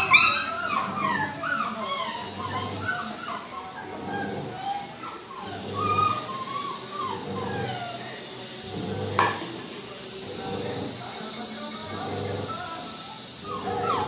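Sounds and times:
puppy whining: 0.0 - 9.1, 13.4 - 14.0.

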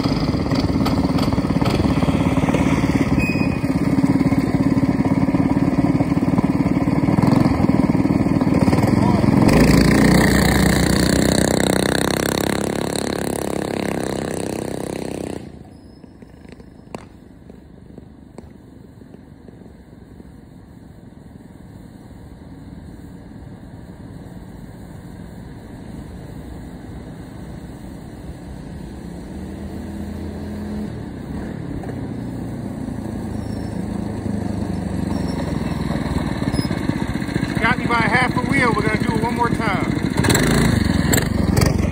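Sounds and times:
minibike engines running: 0.0 - 20.1, 30.8 - 41.9.

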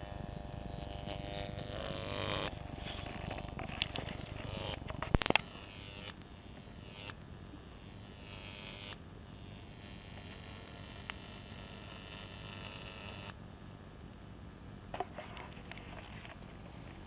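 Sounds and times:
electric arc crackling: 0.0 - 7.2.

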